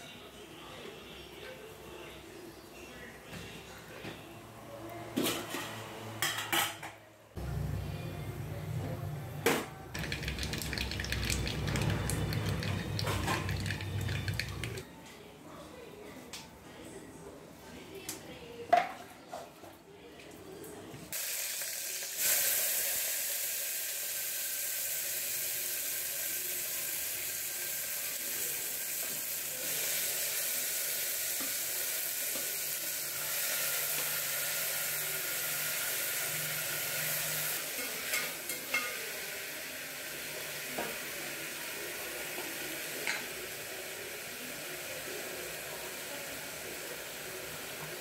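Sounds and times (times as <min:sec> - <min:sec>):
vegetables sizzling in hot oil: 0:21.1 - 0:48.0.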